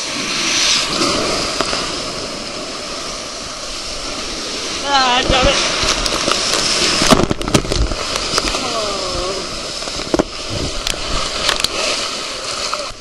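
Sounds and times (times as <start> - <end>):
water rushing and splashing: 0.0 - 13.0.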